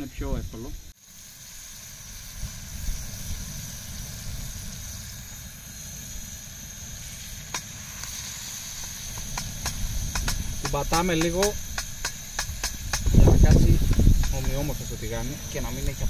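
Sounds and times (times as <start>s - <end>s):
steak sizzling in a hot pan: 1.0s - 16.0s.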